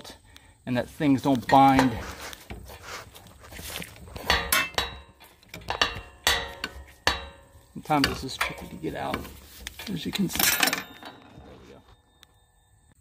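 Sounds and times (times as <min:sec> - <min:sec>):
metal hand tools clinking: 0:03.6 - 0:12.2.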